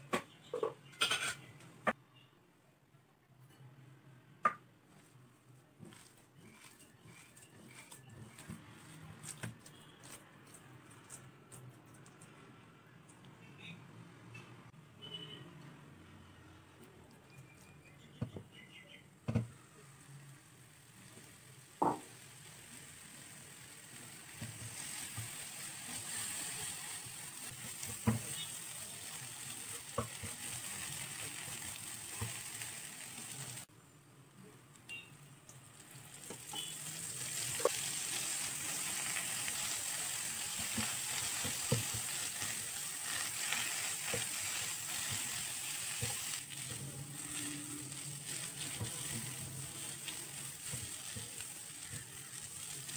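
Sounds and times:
filling sizzling in frying pan: 20.7s - 33.7s, 35.7s - 52.9s.

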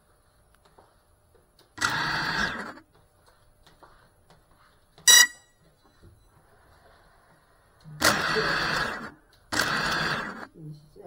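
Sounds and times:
high-pitched beep: 5.1s - 5.5s
drone motors whirring: 7.8s - 10.5s.

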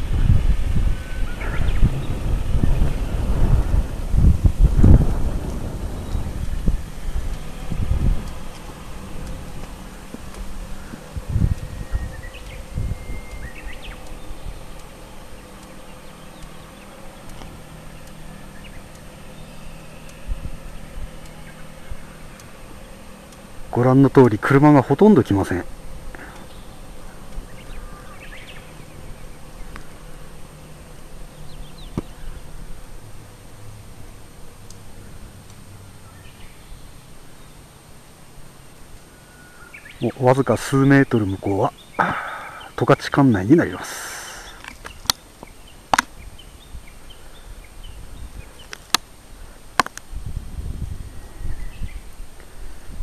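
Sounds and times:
steady low rumble: 0.0s - 53.0s
faint bird chirps: 0.8s - 3.3s, 5.8s - 32.6s, 39.0s - 48.7s, 51.0s - 52.8s
faint clicks: 5.0s - 23.7s, 43.7s - 46.3s
sharp clicks: 44.0s - 46.2s, 49.8s - 50.1s.

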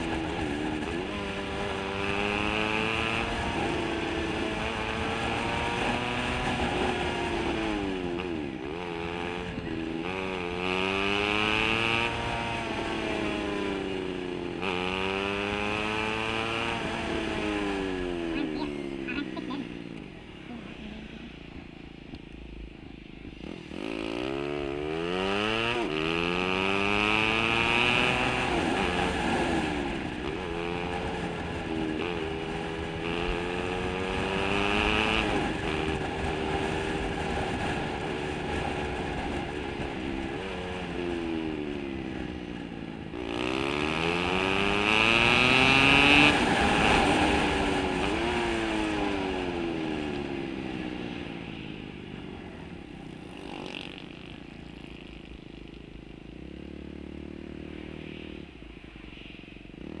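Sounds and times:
scooter engine: 0.0s - 59.1s
rushing wind: 22.5s - 54.3s.

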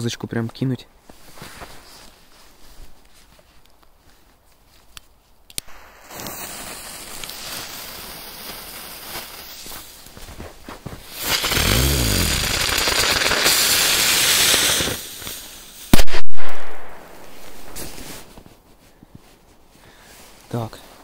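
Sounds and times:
firework rapid crackling: 5.6s - 18.3s
firework fuse hiss: 5.6s - 18.4s.

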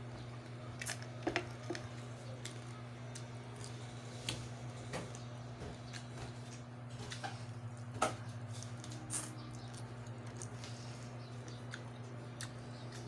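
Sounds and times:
soft chewing: 0.0s - 13.0s
steady low hum: 0.0s - 13.0s.

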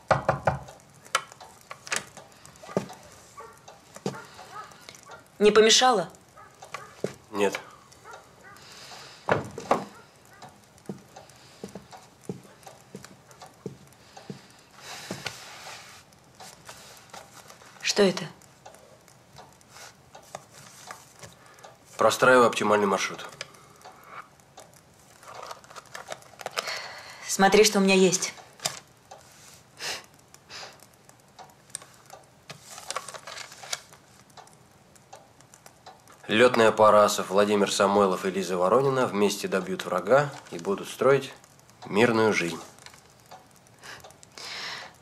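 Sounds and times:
soft rustling: 1.0s - 5.4s, 6.2s - 22.4s, 28.1s - 29.8s, 31.7s - 34.5s
boot footsteps on hard floor: 2.7s - 4.3s, 6.9s - 7.2s, 11.6s - 15.3s
paper rustling: 14.8s - 17.9s, 19.7s - 22.1s, 25.0s - 26.7s, 32.5s - 34.3s
small clicks: 30.0s - 36.3s, 40.0s - 45.0s.

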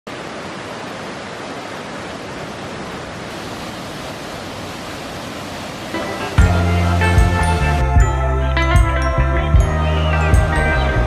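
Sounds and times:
waterfall onto rocks: 0.1s - 7.4s.

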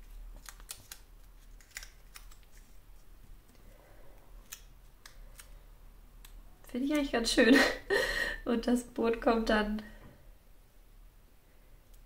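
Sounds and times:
paper rustling: 0.0s - 3.6s.

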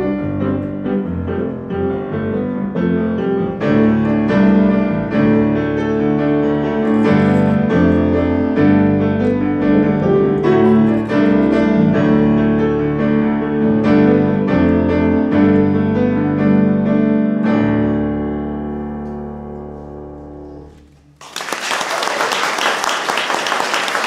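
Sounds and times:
grand piano playing slow piece: 0.0s - 21.2s
audience applause: 21.2s - 24.0s.

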